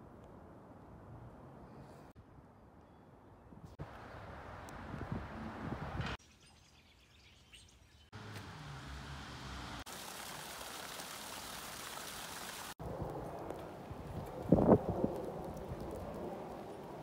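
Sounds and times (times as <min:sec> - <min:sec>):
faint bird chirps: 0:06.2 - 0:08.1
water spilling off a wall: 0:09.8 - 0:12.8.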